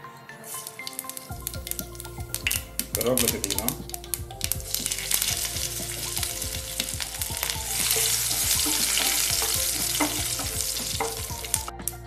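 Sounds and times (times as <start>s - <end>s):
curry leaves sizzling in hot oil: 4.4s - 11.7s.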